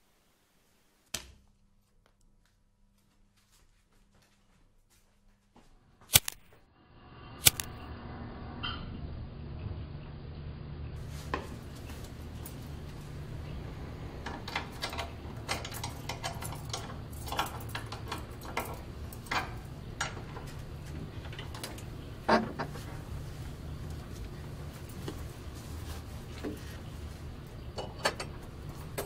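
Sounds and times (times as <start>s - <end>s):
low steady hum: 5.6s - 29.0s.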